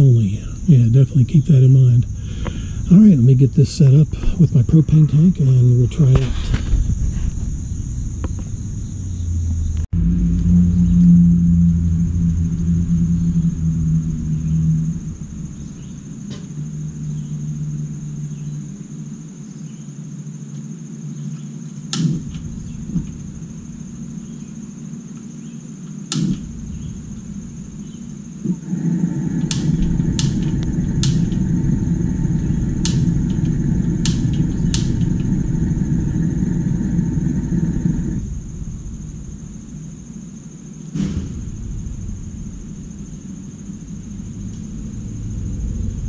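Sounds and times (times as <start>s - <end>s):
steady low rumble: 0.0s - 19.5s, 21.7s - 46.0s
push-button igniter clicking: 29.4s - 31.6s, 32.4s - 35.3s.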